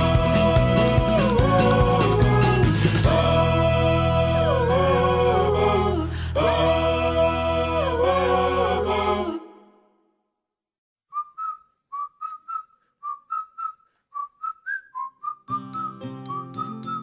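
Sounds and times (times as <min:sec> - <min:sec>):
background music: 0:00.0 - 0:09.6
person whistling a tune: 0:11.1 - 0:17.0.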